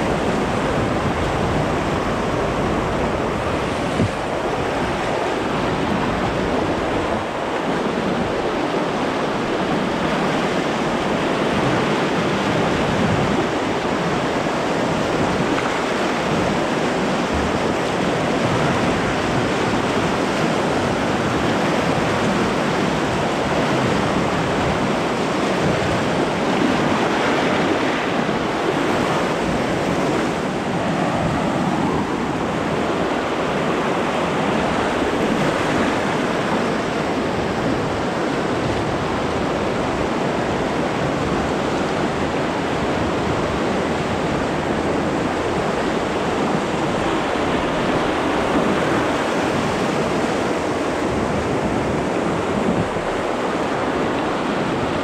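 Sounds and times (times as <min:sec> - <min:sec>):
white-water rapids rushing: 0:00.0 - 0:55.0.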